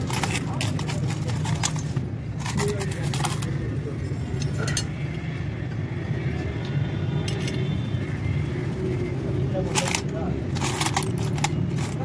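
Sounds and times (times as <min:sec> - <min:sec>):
metal parts clinking in bowl: 0:00.0 - 0:03.6, 0:07.2 - 0:07.7, 0:09.7 - 0:12.0.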